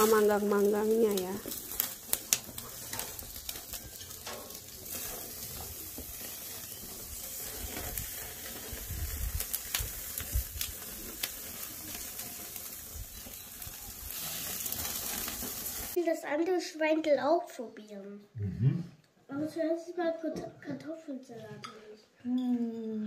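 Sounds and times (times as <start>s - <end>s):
food sizzling on grill: 0.0s - 16.0s.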